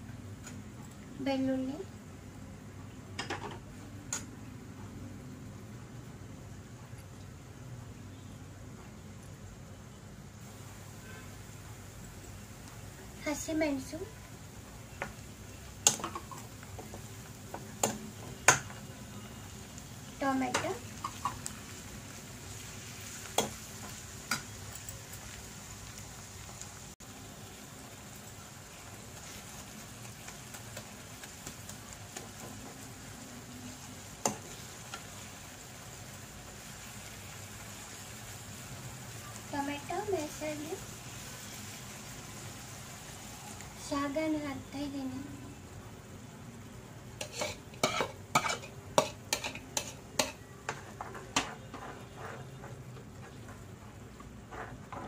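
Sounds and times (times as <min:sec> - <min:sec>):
faint sizzle of frying: 0:00.0 - 0:55.0
metal spoon scraping a pan: 0:47.2 - 0:53.6, 0:54.4 - 0:55.0.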